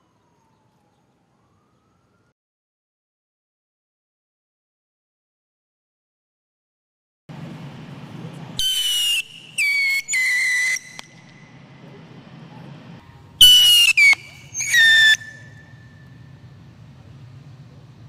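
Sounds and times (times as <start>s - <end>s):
whistling rockets: 8.6s - 16.8s.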